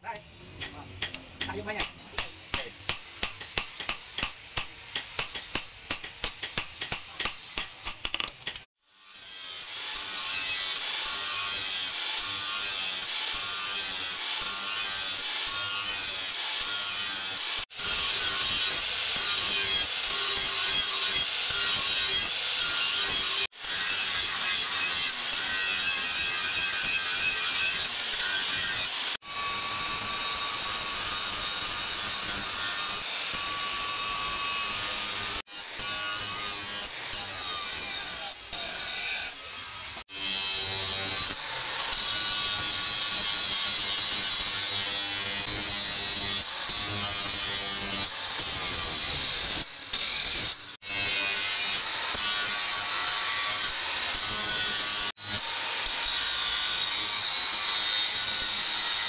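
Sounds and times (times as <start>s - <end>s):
angle grinder grinding metal: 0.0s - 59.0s.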